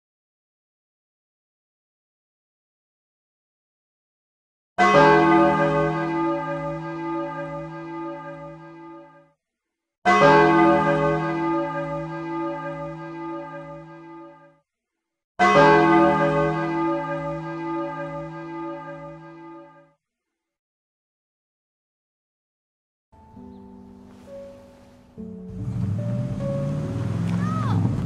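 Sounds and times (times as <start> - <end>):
large bell tolling: 4.8 - 9.2, 10.1 - 14.5, 15.4 - 19.8.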